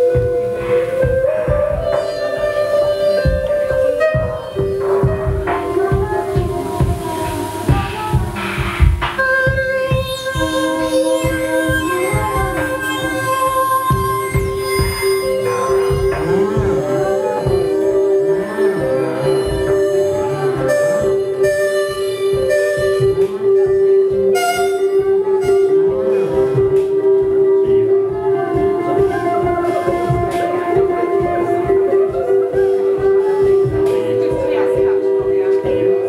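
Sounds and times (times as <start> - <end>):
ambient electronic music: 0.0 - 36.0
low irregular throbs: 0.0 - 36.0
low thudding beat: 0.0 - 36.0
steady drone note: 0.0 - 36.0
sustained tones: 0.0 - 36.0.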